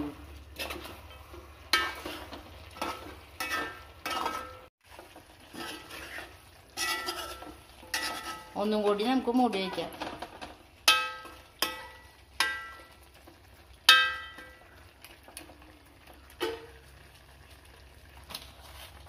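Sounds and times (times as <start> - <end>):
spoon clanging on metal pot: 1.7 - 4.7, 6.8 - 8.6, 10.8 - 13.0, 13.9 - 14.6, 16.4 - 16.8.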